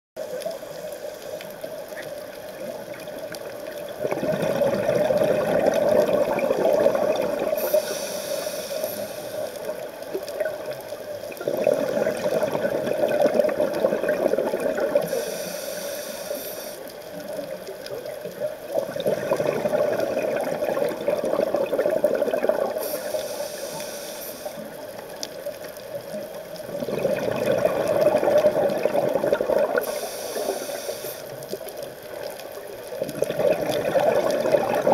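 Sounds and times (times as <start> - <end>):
regulator inhale hiss: 0.2 - 1.8, 7.5 - 10.0, 15.0 - 17.3, 22.7 - 25.0, 29.8 - 31.6
exhaust bubbles rushing: 4.0 - 7.6, 11.4 - 15.0, 18.8 - 22.8, 26.6 - 29.8, 33.0 - 34.9.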